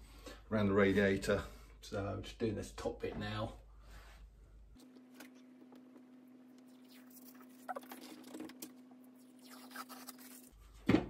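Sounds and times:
wallpaper being scraped and peeled: 9.4s - 10.6s.

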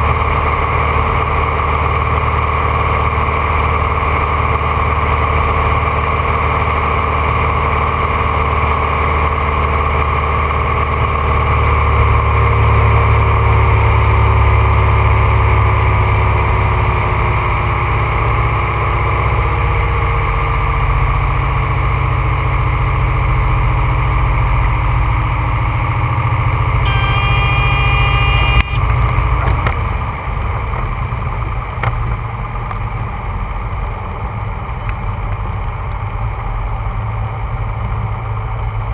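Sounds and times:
high warning tone: 26.8s - 28.8s.

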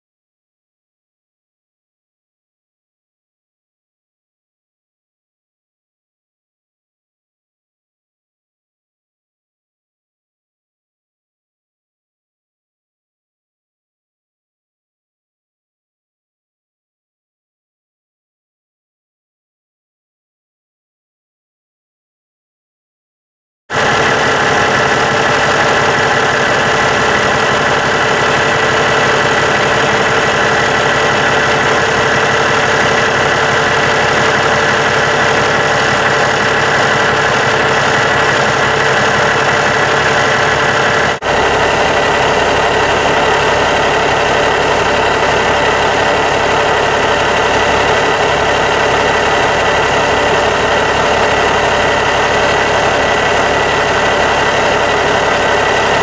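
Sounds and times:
diesel engine idling: 23.7s - 56.0s.

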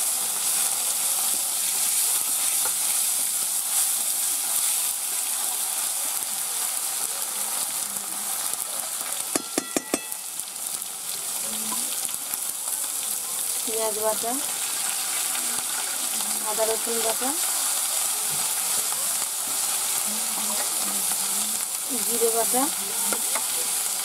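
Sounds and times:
tomato sizzling in hot oil: 0.0s - 24.0s
spatula clinking against pan: 9.4s - 10.3s.

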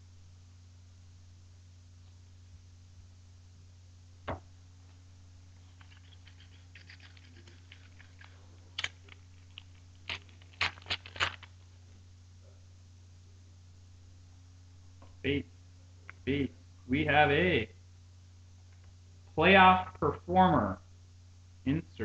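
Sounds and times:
foil wrapper crinkling and tearing: 5.6s - 11.8s.

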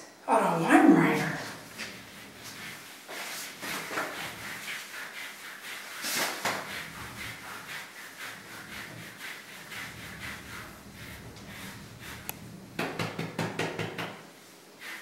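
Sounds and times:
brush scrubbing dog's coat: 1.0s - 12.7s, 14.7s - 15.0s.

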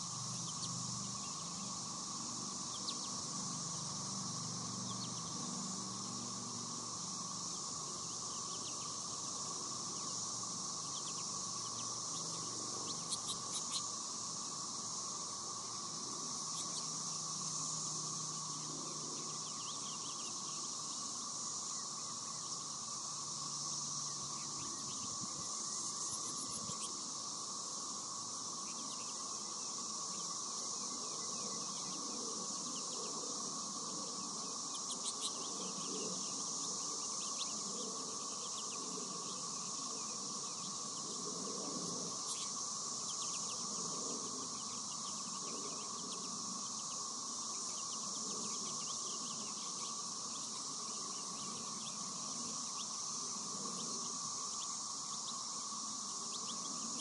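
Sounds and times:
insect chorus: 0.0s - 57.0s
goldfinch chirps: 10.8s - 14.0s, 42.2s - 43.7s.

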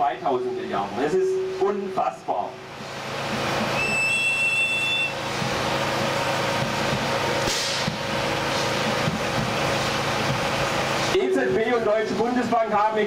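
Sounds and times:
heavy road traffic rumble: 0.0s - 13.0s
high squeal: 3.7s - 5.2s.

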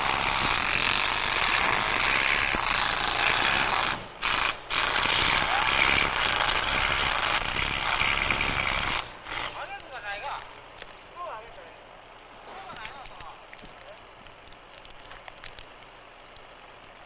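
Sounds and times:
harsh machine noise: 0.0s - 9.6s.

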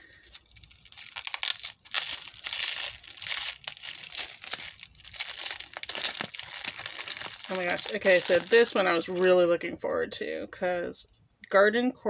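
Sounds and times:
bubble wrap crinkling: 0.0s - 9.5s.

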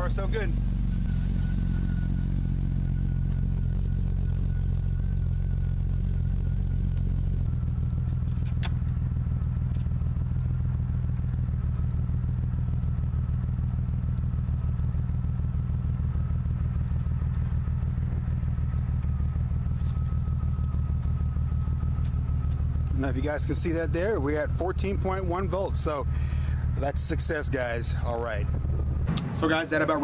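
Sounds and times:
faint high whine: 0.0s - 9.9s, 16.1s - 30.0s
car engine idling: 0.0s - 30.0s.

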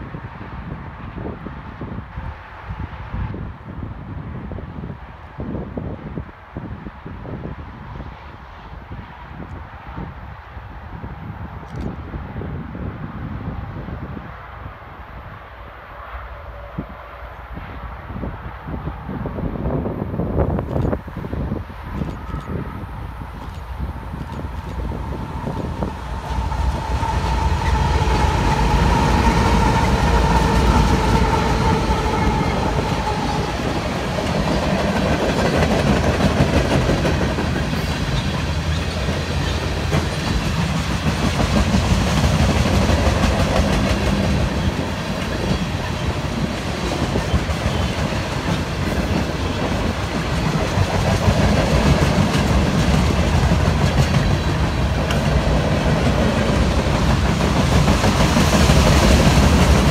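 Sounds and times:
diesel locomotives whining: 15.2s - 59.9s
freight cars rumbling: 16.8s - 59.9s
wheels clacking over rail joints: 23.3s - 59.9s.

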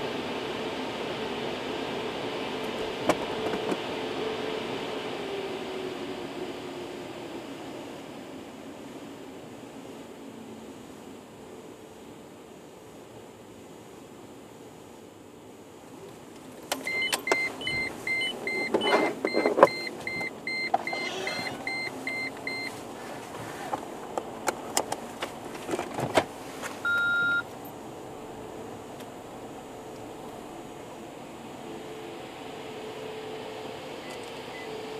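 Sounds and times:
short electronic beeps: 16.8s - 22.8s, 26.8s - 27.5s
long low beep: 16.9s - 22.8s, 26.8s - 27.5s.

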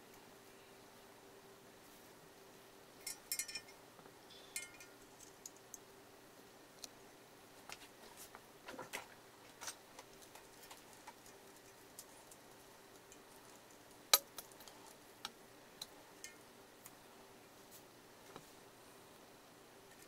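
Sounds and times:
porcelain pieces clicking together: 3.1s - 3.8s, 13.0s - 16.4s.

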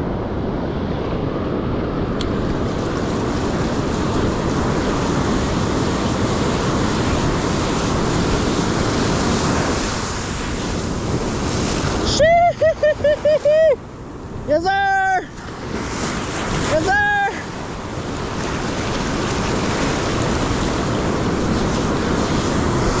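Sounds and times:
ocean surf breaking: 0.0s - 23.0s
wind buffeting microphone: 0.0s - 23.0s.

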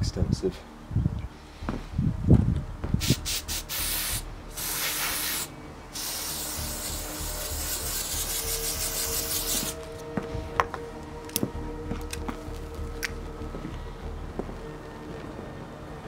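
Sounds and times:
aerosol can spraying: 3.0s - 9.8s.

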